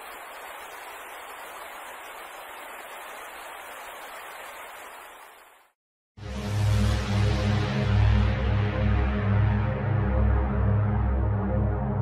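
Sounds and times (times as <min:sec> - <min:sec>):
steady hiss of noise: 0:00.0 - 0:05.6.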